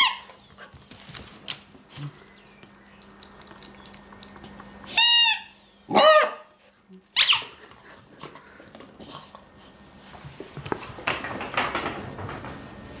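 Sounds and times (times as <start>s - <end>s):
puppy claws on tiled floor: 0.0s - 5.2s, 6.6s - 13.0s
squeaky toy squeak: 4.9s - 5.5s.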